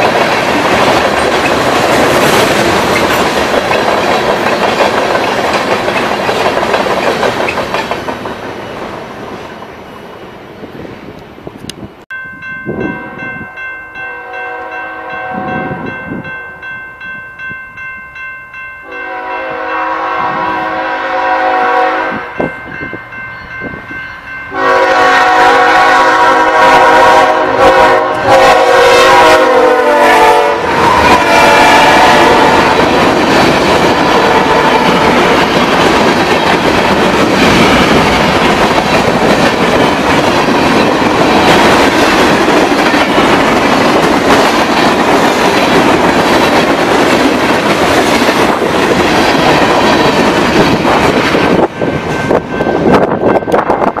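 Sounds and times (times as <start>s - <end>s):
train wheels on rail: 0.0s - 54.0s
locomotive horn blasts: 14.0s - 15.9s, 18.8s - 22.5s, 24.5s - 32.9s, 34.2s - 35.3s.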